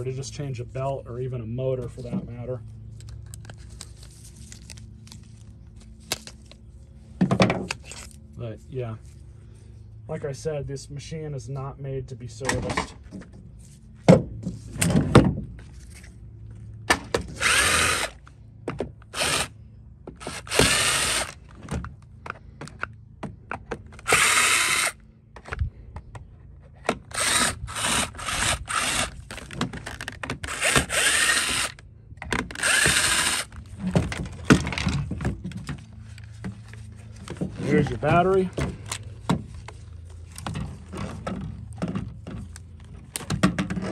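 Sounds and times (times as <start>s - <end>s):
cordless drill bursts: 17.3s - 18.2s, 19.0s - 19.6s, 20.2s - 21.5s, 24.0s - 25.0s, 27.0s - 29.5s, 30.4s - 31.8s, 32.5s - 33.6s
plastic parts clicking and knocking: 28.0s - 35.8s, 38.6s - 43.9s.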